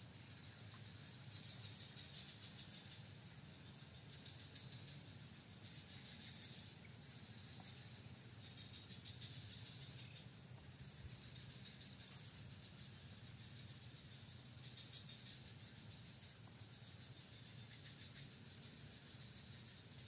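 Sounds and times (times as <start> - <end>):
high-pitched insect buzz: 0.0 - 20.0.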